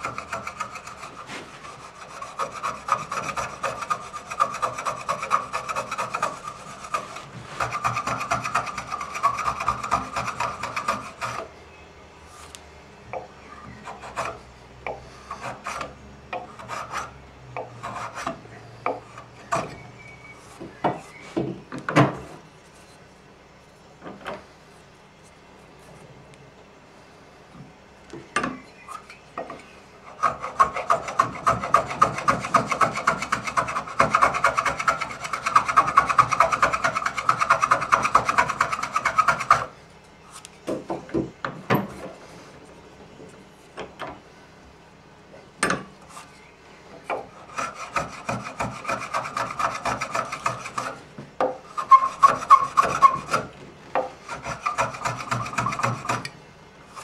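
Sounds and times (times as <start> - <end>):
wood sanding by hand: 0.0 - 11.5, 13.8 - 14.4, 15.1 - 19.7, 30.0 - 39.7, 47.2 - 51.0, 51.7 - 56.3.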